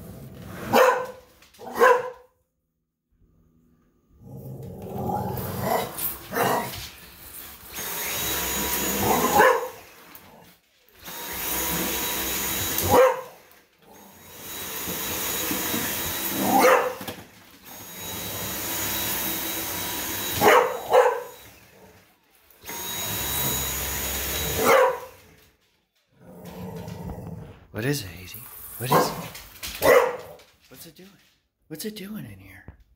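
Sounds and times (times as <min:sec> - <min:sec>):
dog barking: 0:00.7 - 0:02.3, 0:09.0 - 0:09.8, 0:12.8 - 0:13.4, 0:16.5 - 0:17.0, 0:20.4 - 0:21.4, 0:24.6 - 0:25.2, 0:28.9 - 0:30.4
vacuum cleaner motor whining: 0:04.8 - 0:25.6.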